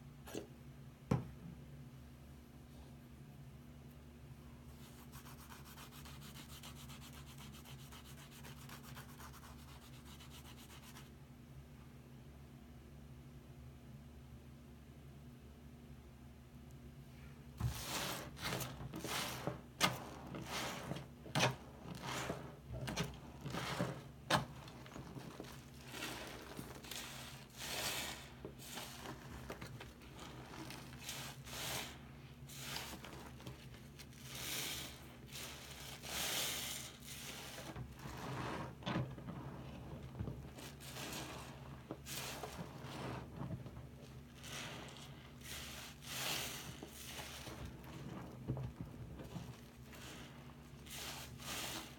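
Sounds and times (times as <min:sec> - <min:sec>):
soapy sponges squelching: 0:17.6 - 0:51.9.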